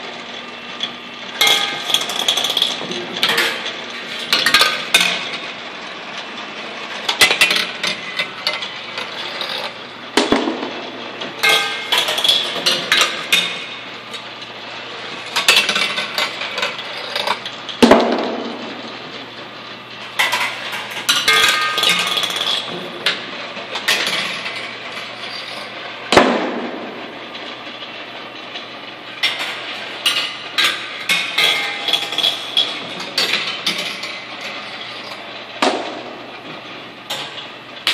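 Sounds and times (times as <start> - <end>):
steady low hum: 0.0 - 37.9
gumballs clattering through metal channels: 1.4 - 5.5, 7.0 - 10.4, 11.4 - 14.3, 15.0 - 17.8, 20.1 - 25.8, 29.2 - 35.3.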